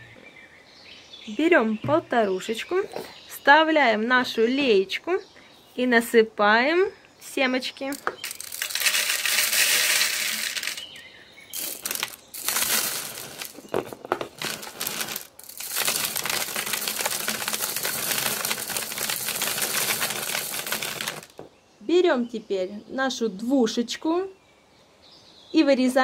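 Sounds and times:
seeds pouring into plastic bottle: 0:07.9 - 0:11.0, 0:11.6 - 0:21.4.

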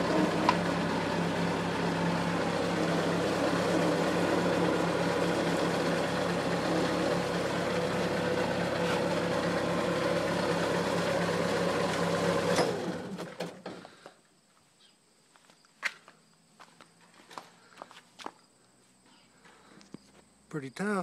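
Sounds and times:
vehicle engine running: 0:00.0 - 0:14.0.

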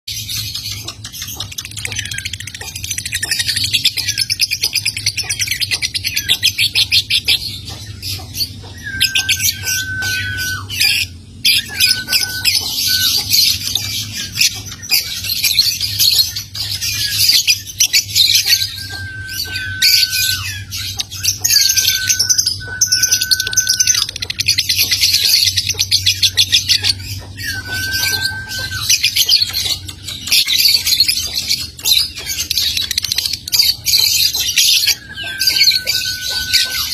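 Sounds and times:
bird ticking chatter: 0:00.2 - 0:36.9
bird cackling trills: 0:00.3 - 0:36.9
bird whistled notes: 0:06.1 - 0:31.4, 0:33.9 - 0:36.9.

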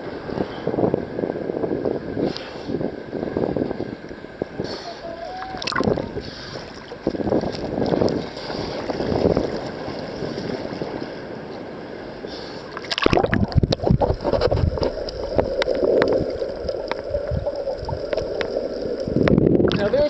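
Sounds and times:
ocean surf splashing: 0:00.0 - 0:20.0
muffled underwater rushing: 0:03.8 - 0:20.0
small underwater clicks and knocks: 0:05.5 - 0:06.0, 0:12.7 - 0:19.9.

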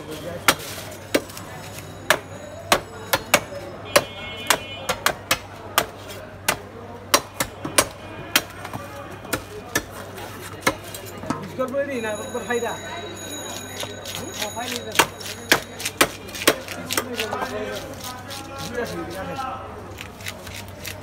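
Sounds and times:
blade chopping on wooden block: 0:14.9 - 0:17.3.

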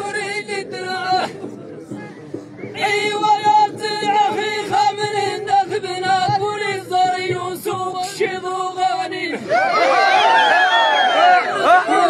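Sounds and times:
men singing a chant: 0:11.4 - 0:12.0.

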